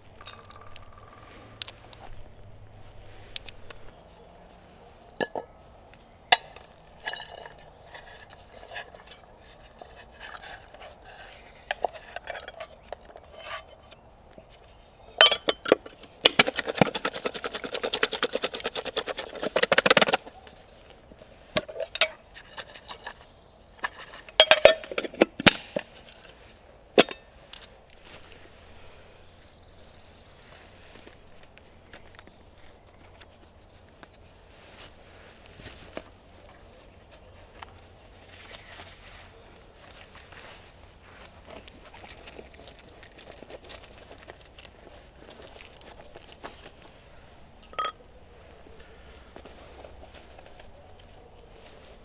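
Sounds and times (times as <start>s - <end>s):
metal cookware clinking: 15.2s - 15.8s, 47.7s - 48.0s.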